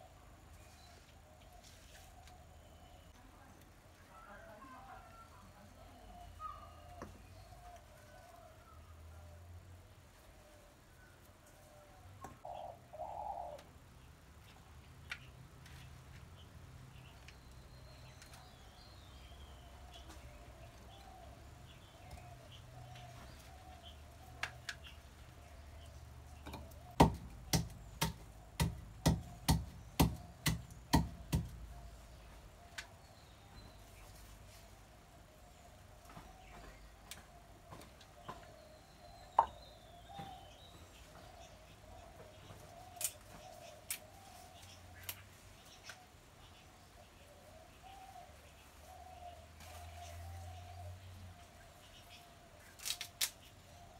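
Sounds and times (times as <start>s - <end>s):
okra pods snapping: 26.5s - 31.7s, 42.9s - 46.0s, 52.6s - 53.5s
pestle pounding in wooden mortar: 27.0s - 31.6s.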